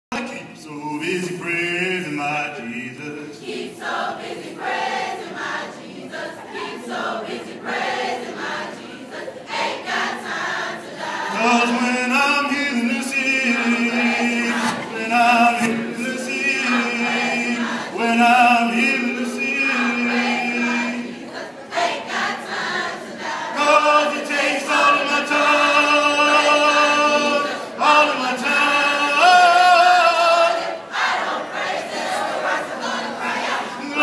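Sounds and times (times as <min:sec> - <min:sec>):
chorus singing a spiritual: 0:00.2 - 0:34.0.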